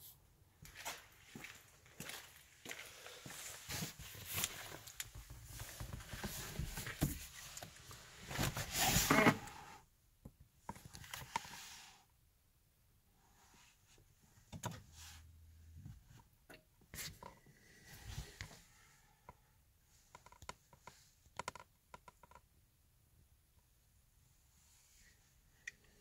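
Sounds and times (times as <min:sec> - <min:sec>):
rustling and clicks in car seat: 0:04.0 - 0:08.8.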